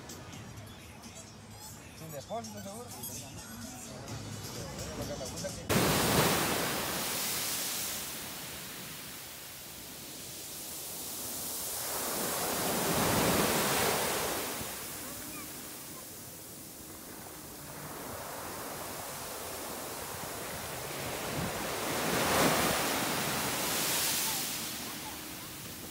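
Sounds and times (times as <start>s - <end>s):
waves breaking on beach: 5.7s - 25.9s.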